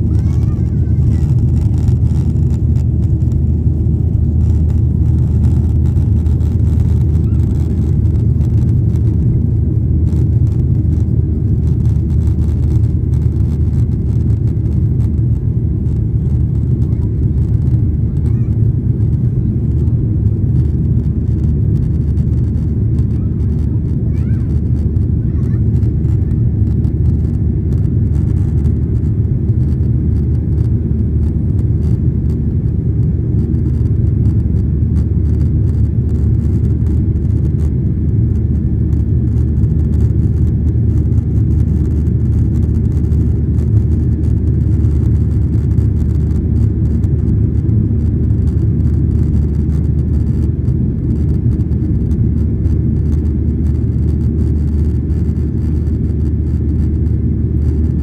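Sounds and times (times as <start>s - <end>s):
jet engines rumbling in cabin: 0.0s - 58.0s.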